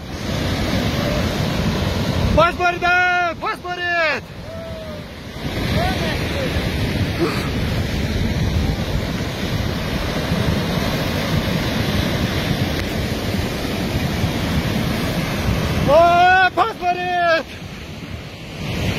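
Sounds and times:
flood water rushing: 0:00.0 - 0:18.9
faint shout: 0:04.0 - 0:05.2.

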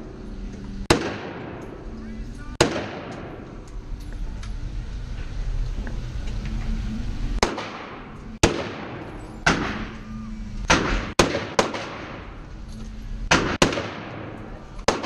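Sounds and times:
rifle shots echoing indoors: 0:00.8 - 0:01.9, 0:02.5 - 0:03.6, 0:07.4 - 0:12.4, 0:13.2 - 0:15.0.

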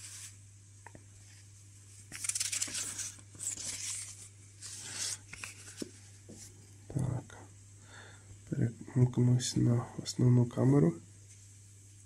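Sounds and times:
paper booklets rustling: 0:02.0 - 0:06.5.

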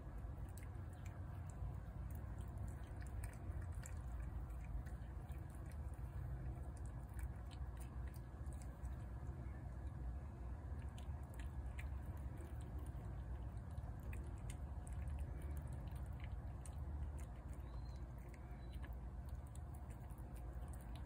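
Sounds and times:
cat chewing food: 0:00.0 - 0:21.0
steady low rumble: 0:00.0 - 0:21.0.

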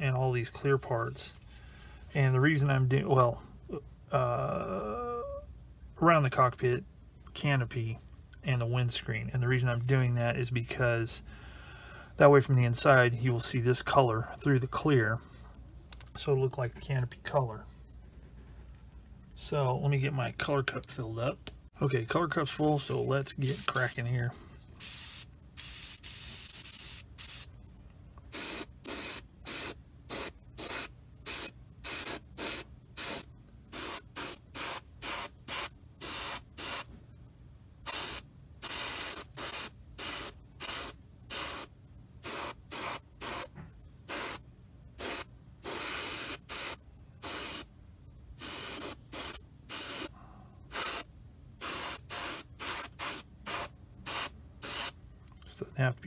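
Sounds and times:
airbrush spraying hiss: 0:23.4 - 0:24.0, 0:24.8 - 0:27.5, 0:28.3 - 0:36.9, 0:37.9 - 0:43.5, 0:44.1 - 0:44.4, 0:45.0 - 0:47.7, 0:48.4 - 0:50.1, 0:50.7 - 0:54.9.

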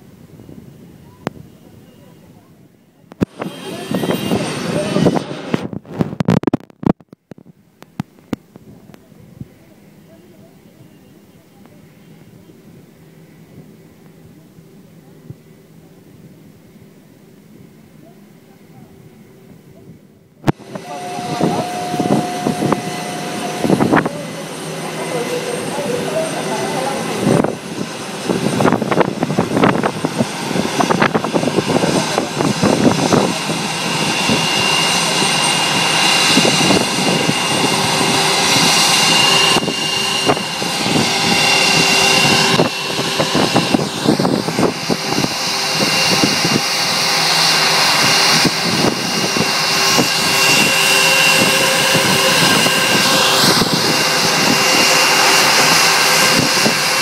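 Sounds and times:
jet engines whining: 0:00.0 - 0:06.6, 0:20.4 - 0:57.0.

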